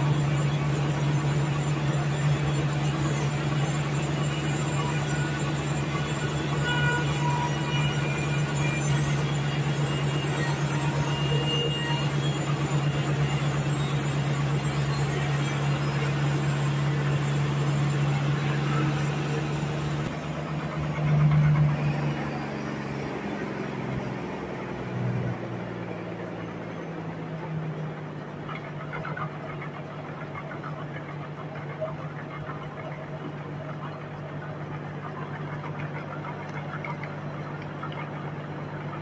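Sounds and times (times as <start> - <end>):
band saw cutting log: 0.0 - 25.3.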